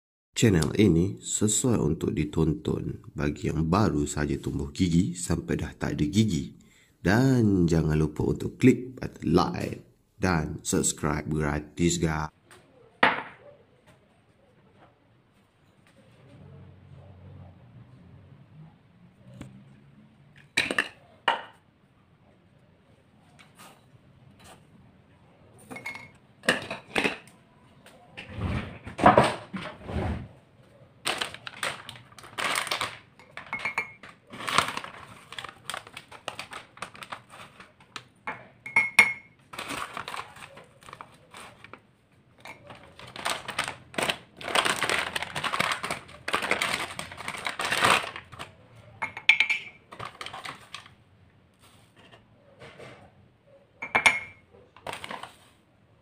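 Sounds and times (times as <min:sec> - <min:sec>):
spoon clinking against mug: 0:25.7 - 0:26.2, 0:33.5 - 0:34.0, 0:38.3 - 0:39.4, 0:49.0 - 0:49.8, 0:53.8 - 0:54.4.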